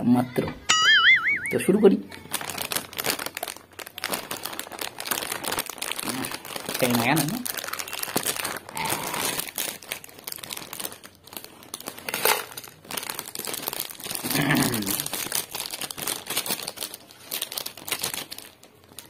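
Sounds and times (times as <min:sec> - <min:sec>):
foil chip bag crinkling: 0:01.6 - 0:19.0
chips pouring onto plate: 0:11.1 - 0:16.7.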